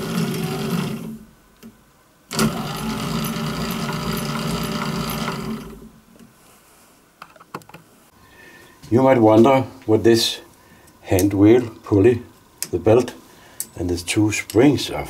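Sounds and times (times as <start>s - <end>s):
electric motor humming: 0.0s - 1.2s, 2.3s - 5.9s.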